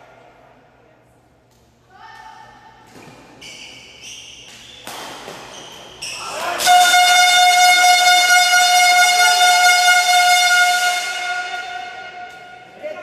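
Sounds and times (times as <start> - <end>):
loud steady horn-like tone: 6.6 - 13.0.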